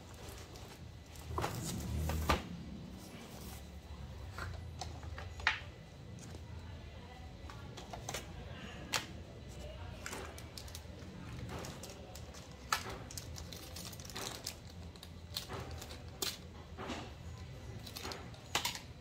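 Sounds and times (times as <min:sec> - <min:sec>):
plastic bag crinkling: 0:10.3 - 0:16.3.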